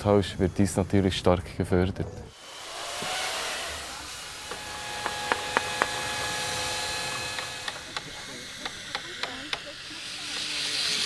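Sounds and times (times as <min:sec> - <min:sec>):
electric chainsaw cutting wood: 0:02.3 - 0:11.0
mallet striking chisel: 0:04.5 - 0:06.0, 0:07.3 - 0:09.7.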